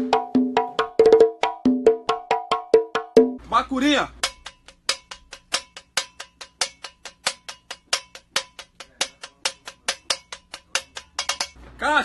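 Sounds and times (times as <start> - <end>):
drumstick strikes with ringing tone: 4.2 - 11.6.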